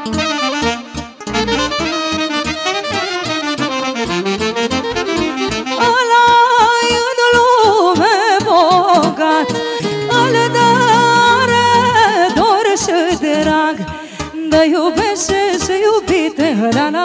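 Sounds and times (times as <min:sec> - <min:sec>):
folk band playing instrumental: 0:09.5 - 0:12.4.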